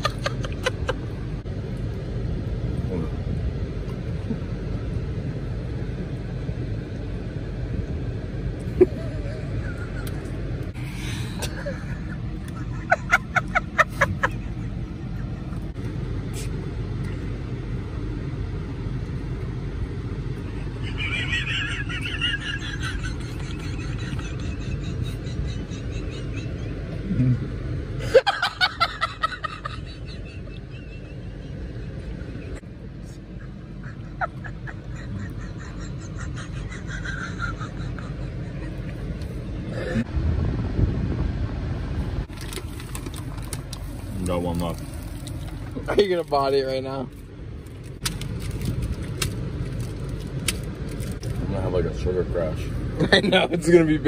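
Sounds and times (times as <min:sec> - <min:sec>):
car idling: 0:00.0 - 0:54.0
man wheezing laughter: 0:20.6 - 0:27.4, 0:33.4 - 0:38.9.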